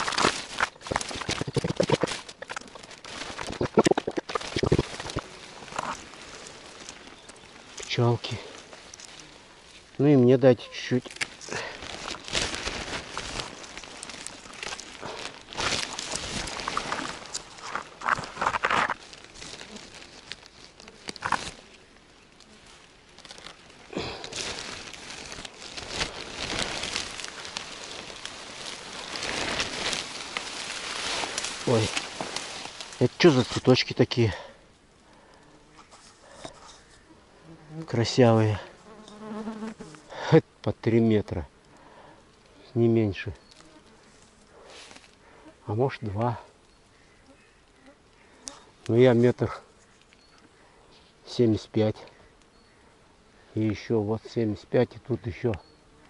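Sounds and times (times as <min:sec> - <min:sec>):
plastic bag crinkling: 0:00.0 - 0:09.2, 0:11.0 - 0:21.8, 0:22.4 - 0:33.8
plants brushing past: 0:00.0 - 0:34.4
fern fronds rustling: 0:00.0 - 0:56.0.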